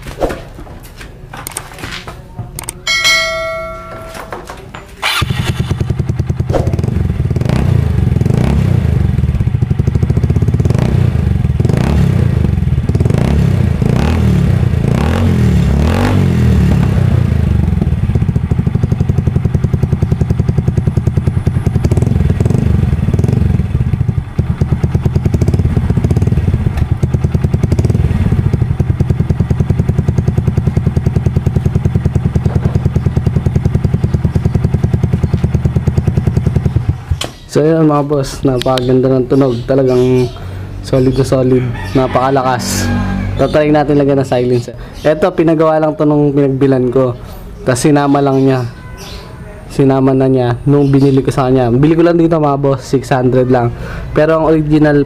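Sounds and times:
scooter engine revving: 5.0 - 37.4, 38.5 - 44.4.

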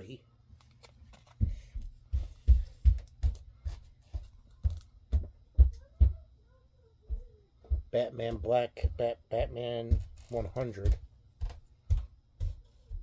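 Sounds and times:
soft dull thumps of book: 1.1 - 5.8.

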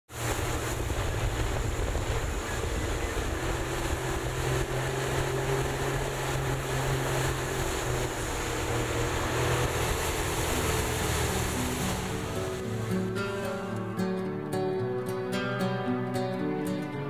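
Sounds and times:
wind on microphone: 0.1 - 13.5
water rushing past hull: 0.1 - 14.0
boat engine droning: 0.1 - 17.0.

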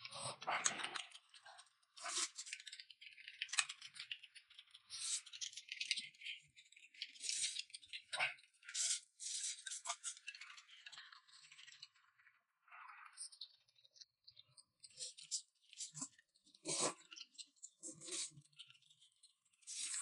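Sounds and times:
noodles being slurped: 2.0 - 3.8, 14.9 - 18.9, 19.6 - 20.0.

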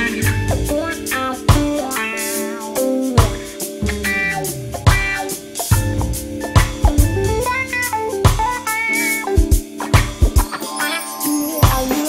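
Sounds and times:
drum beat: 0.0 - 10.6
guitar notes: 0.0 - 12.0
sharp drum hit: 3.2 - 8.6.

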